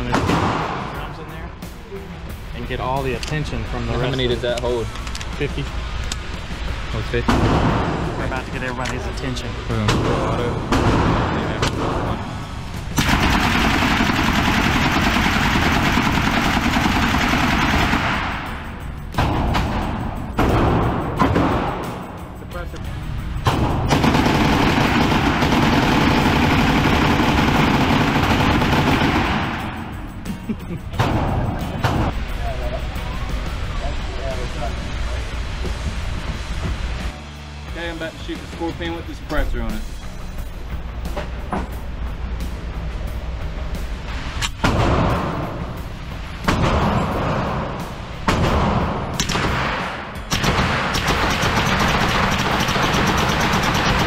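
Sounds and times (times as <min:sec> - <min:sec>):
submachine gun shots echoing: 0:00.0 - 0:01.0, 0:13.0 - 0:18.6, 0:23.5 - 0:29.9, 0:46.5 - 0:54.0
automatic gunfire: 0:13.0 - 0:18.5, 0:23.5 - 0:29.8, 0:48.3 - 0:54.0.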